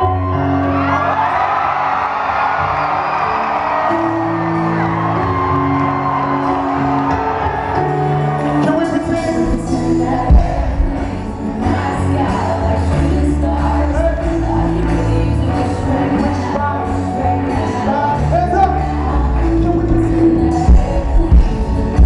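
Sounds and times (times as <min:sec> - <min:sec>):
crowd whooping: 0:00.0 - 0:08.8
person singing: 0:07.7 - 0:22.0.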